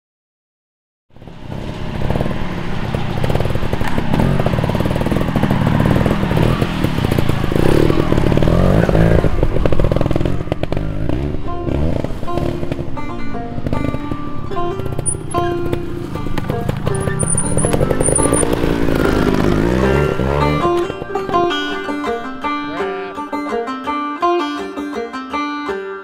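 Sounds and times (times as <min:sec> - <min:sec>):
motorcycle engine revving: 0:01.1 - 0:22.7
music: 0:11.0 - 0:18.1, 0:19.4 - 0:26.0.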